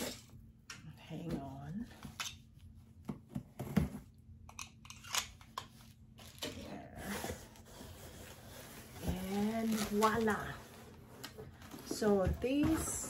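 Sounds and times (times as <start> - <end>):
cardboard rustling: 6.2 - 13.0.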